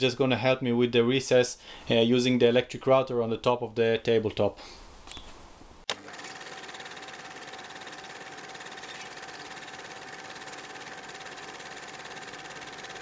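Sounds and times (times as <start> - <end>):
jigsaw cutting board: 5.9 - 13.0.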